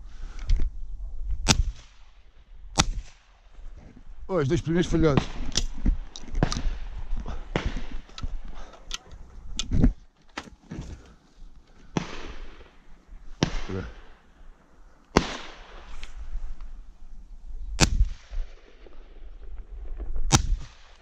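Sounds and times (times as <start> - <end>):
shotgun shots with echo: 13.4 - 14.2, 15.1 - 15.9.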